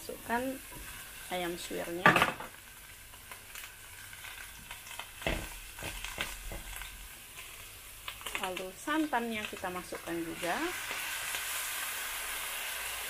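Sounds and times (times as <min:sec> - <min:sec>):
chicken sizzling in a wok: 0:00.0 - 0:13.0
spatula scraping and knocking pan: 0:05.2 - 0:06.9.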